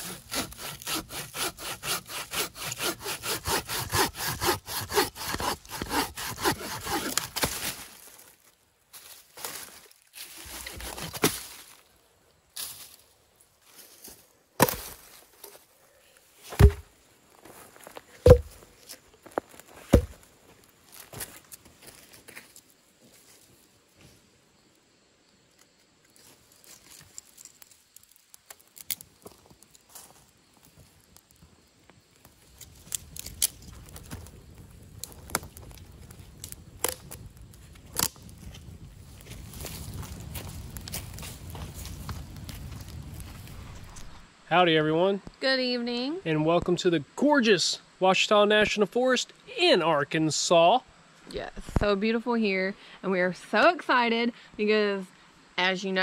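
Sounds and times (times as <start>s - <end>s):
logs thudding onto each other: 14.6s - 15.2s, 16.5s - 16.9s, 18.2s - 18.6s, 19.9s - 20.2s
fire crackling and snapping: 25.5s - 44.3s.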